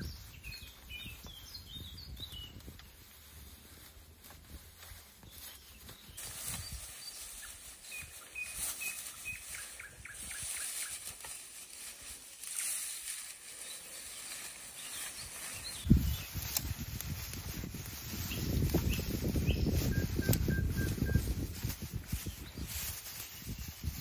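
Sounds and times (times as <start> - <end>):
bird chirps: 0.0 - 2.6, 5.2 - 11.2, 12.5 - 16.4, 18.2 - 21.3.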